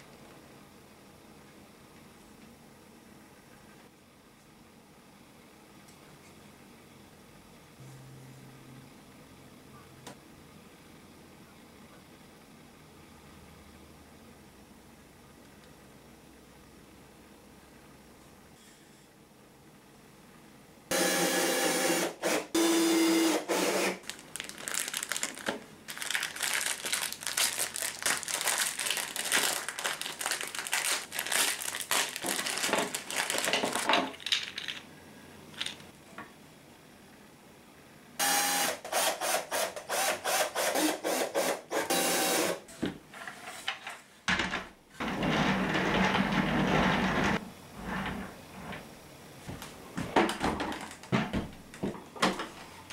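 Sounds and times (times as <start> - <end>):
cordless drill whirring: 20.9 - 24.0, 38.2 - 42.6
plastic bag crackling: 24.0 - 34.8.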